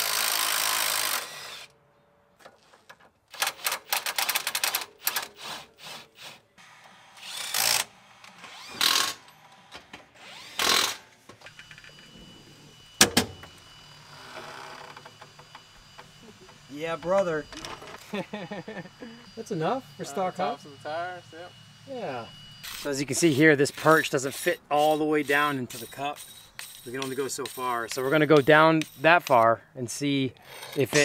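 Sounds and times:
power tool bursts: 0:00.0 - 0:01.8, 0:03.3 - 0:29.1
rapid ratchet clicking: 0:23.9 - 0:29.1.

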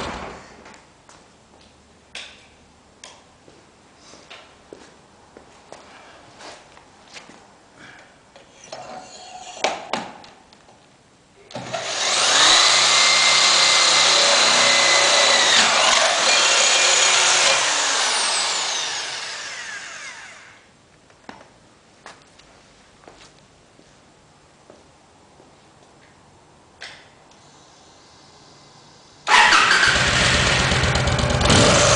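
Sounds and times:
electric drill whining: 0:11.6 - 0:20.6.

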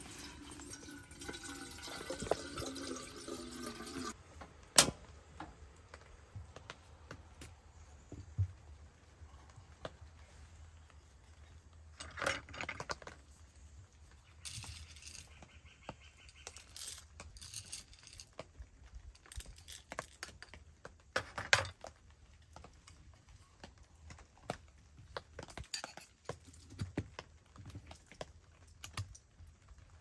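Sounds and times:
coffee beans rattling in grinder: 0:16.5 - 0:18.3.

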